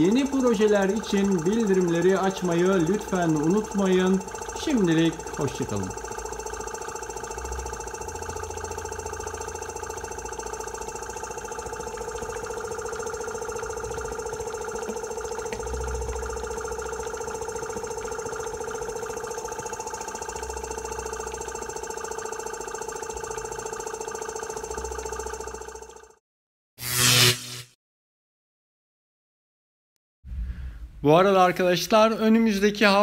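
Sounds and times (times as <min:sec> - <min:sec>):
air compressor whining: 0:00.0 - 0:26.2.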